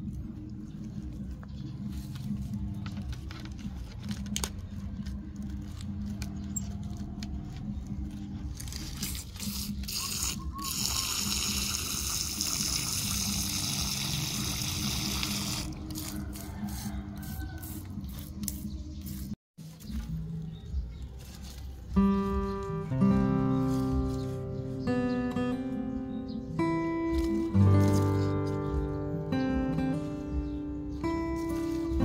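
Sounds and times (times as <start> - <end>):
water hissing from sprayer nozzle: 9.4 - 16.1.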